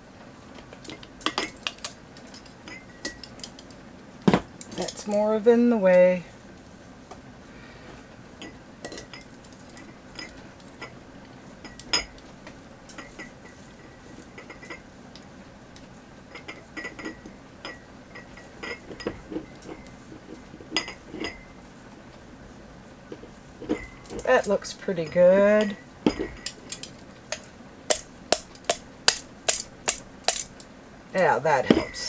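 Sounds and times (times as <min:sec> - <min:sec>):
metal tongs clinking on pot and jars: 0:00.8 - 0:03.8, 0:04.6 - 0:05.3, 0:08.4 - 0:10.9, 0:23.6 - 0:30.6.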